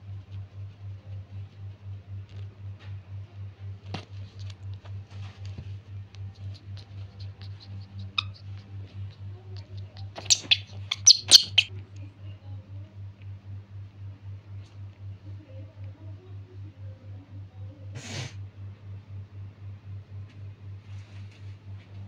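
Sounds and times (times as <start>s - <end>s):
low pulsing hum: 0.0s - 22.0s
baby monkey squealing: 6.4s - 11.7s.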